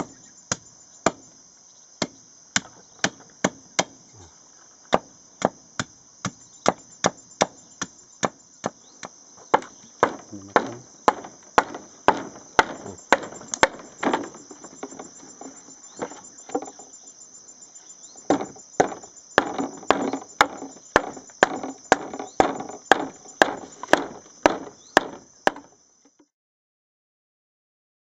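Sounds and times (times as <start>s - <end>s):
high insect buzz: 0.0s - 26.3s
hollow wooden knocks: 4.9s - 17.1s, 18.2s - 26.2s.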